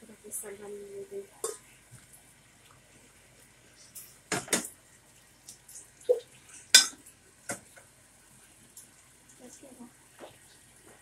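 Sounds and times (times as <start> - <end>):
metal spatula clinking on skillet: 6.7 - 7.0.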